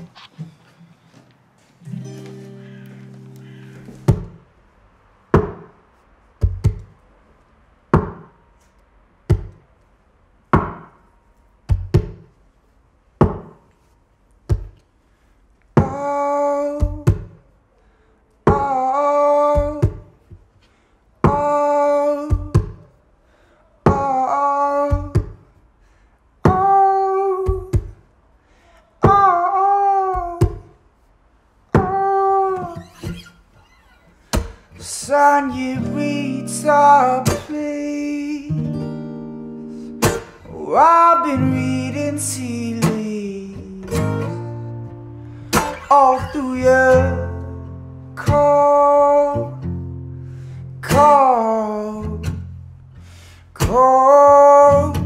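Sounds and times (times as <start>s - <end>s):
percussive thumps: 4.0s - 4.4s, 5.4s - 5.8s, 6.4s - 7.0s, 8.0s - 8.4s, 9.3s - 9.6s, 10.6s - 11.0s, 11.7s - 12.3s, 13.2s - 13.6s, 16.8s - 17.4s, 22.3s - 22.9s, 30.2s - 30.7s
man singing wordless notes: 15.8s - 17.1s, 18.5s - 20.2s, 21.2s - 22.8s, 23.9s - 25.2s, 26.5s - 27.8s, 29.0s - 30.7s, 31.8s - 33.2s, 34.8s - 38.8s, 40.4s - 44.6s, 45.7s - 49.7s, 50.8s - 52.5s, 53.6s - 55.0s.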